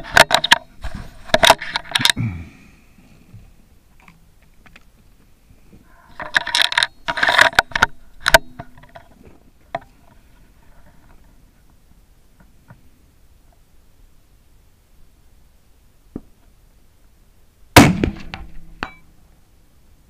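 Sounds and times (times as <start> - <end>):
rifle metallic clicks and scrapes: 0.0 - 2.2, 6.0 - 9.2.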